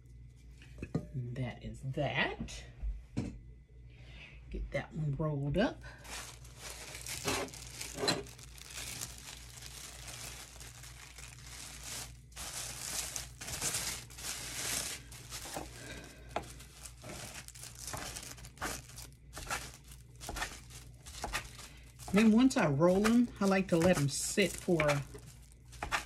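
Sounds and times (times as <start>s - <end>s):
plastic wrap crinkling: 5.9s - 26.0s.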